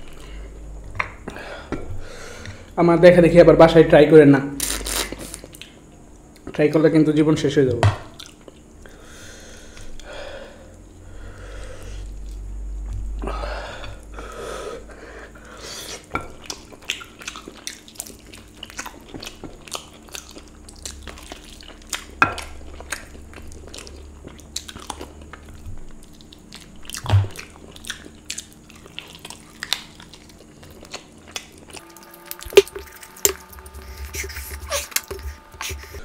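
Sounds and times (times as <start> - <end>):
person chewing and biting: 16.4 - 36.0.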